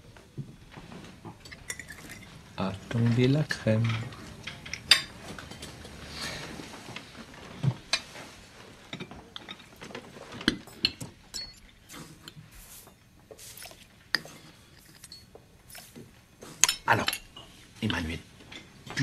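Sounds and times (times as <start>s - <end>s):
cutlery clinking on plates: 1.2s - 6.5s, 10.4s - 12.4s, 14.2s - 17.6s.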